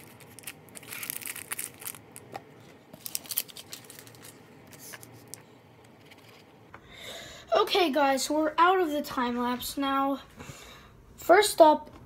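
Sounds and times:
packaging crackling and tearing: 0.0s - 5.4s.

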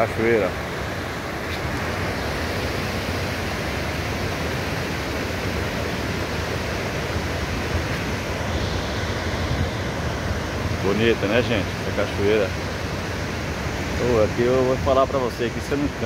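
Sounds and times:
waterfall rushing: 0.0s - 16.0s.

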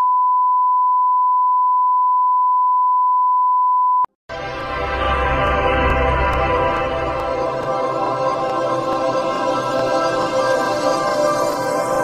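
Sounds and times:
music with low bass: 4.3s - 10.5s.

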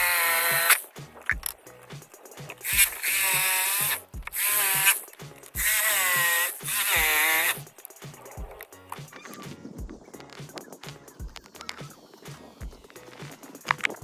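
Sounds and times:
jigsaw cutting wood: 0.0s - 0.8s, 2.6s - 5.0s, 5.6s - 7.6s
background music beat: 0.0s - 14.0s.

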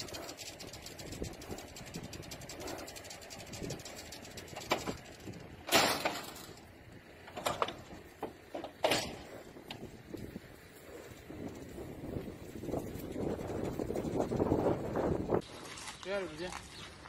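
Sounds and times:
hooves knocking on trailer floor: 7.2s - 10.3s.

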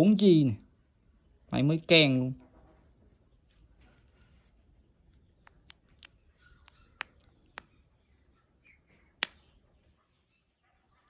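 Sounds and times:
wristwatch clicks and taps: 5.4s - 7.8s.

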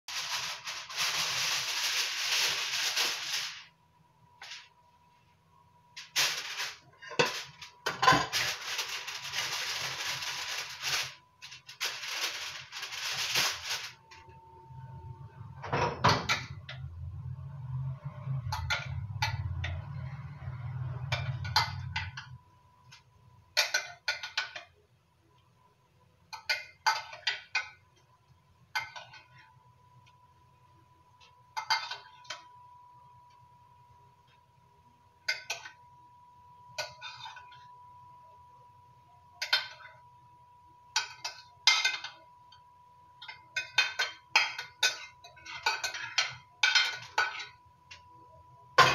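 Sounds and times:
aluminium foil crackling: 0.1s - 3.8s, 4.4s - 4.7s, 6.0s - 14.1s.

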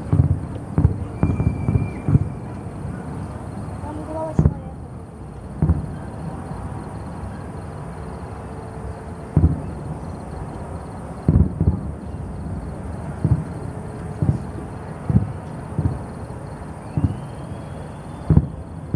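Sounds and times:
distant firework shells bursting: 0.0s - 2.8s, 5.5s - 6.1s, 13.0s - 16.2s, 16.9s - 17.5s, 18.2s - 18.9s
low background rumble: 8.7s - 17.5s.

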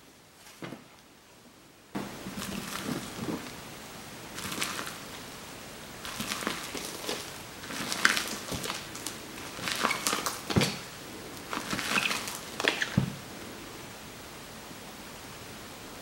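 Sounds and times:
steady background hiss: 0.0s - 16.0s
slime squished by hand: 4.3s - 5.1s, 6.0s - 13.2s.

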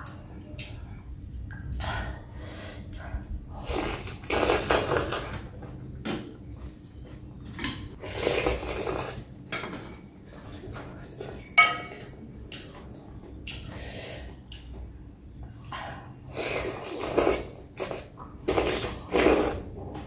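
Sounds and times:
slurping and chewing: 3.5s - 5.5s, 8.0s - 9.3s, 15.7s - 19.7s.

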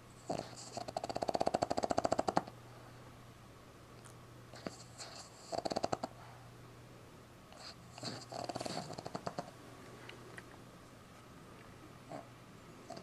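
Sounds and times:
puppy snoring: 0.1s - 2.5s, 4.5s - 6.4s, 7.5s - 9.6s, 12.1s - 13.0s.

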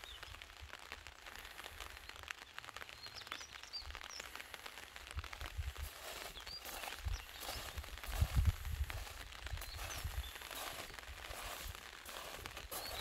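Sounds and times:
light crackling patter: 0.0s - 13.0s
small birds chirping: 0.0s - 13.0s
wind rumble on microphone: 5.1s - 11.8s.

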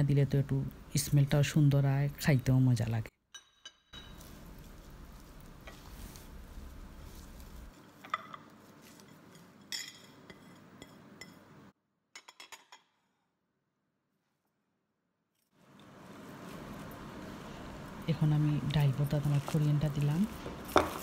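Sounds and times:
china plates clinking: 3.4s - 4.3s, 9.6s - 11.4s
fried onions rustling: 4.0s - 9.6s, 15.6s - 21.0s.

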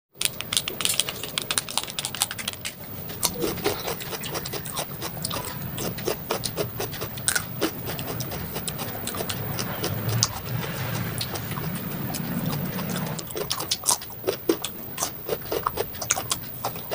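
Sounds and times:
plastic shaker rattling: 0.2s - 5.2s.

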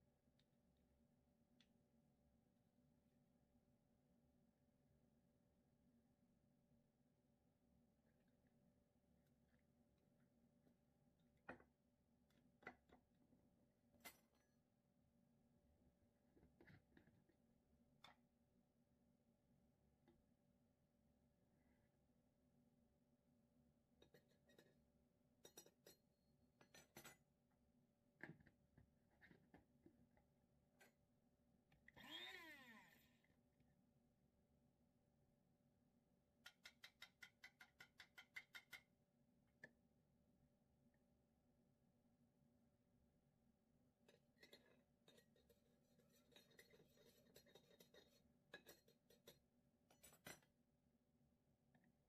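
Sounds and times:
metal spoon clinking and tapping: 25.4s - 26.0s, 36.4s - 38.9s, 44.4s - 50.5s
knife scraping container: 45.1s - 49.3s.

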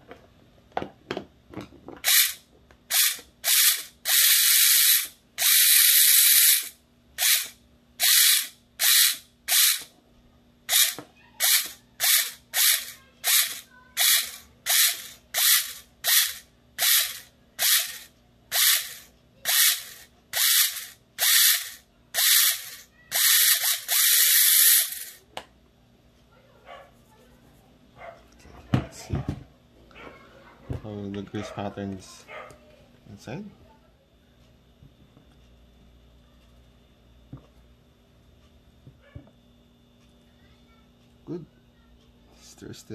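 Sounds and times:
electric gearbox motor whirring in bursts: 2.0s - 9.9s, 10.7s - 25.2s.

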